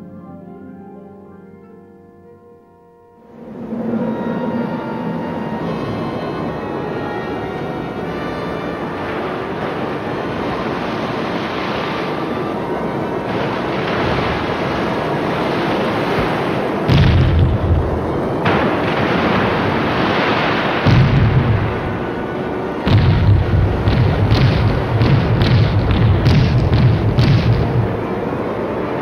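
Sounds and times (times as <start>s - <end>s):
deep heavy booms: 16.9s - 22.2s, 22.8s - 28.2s.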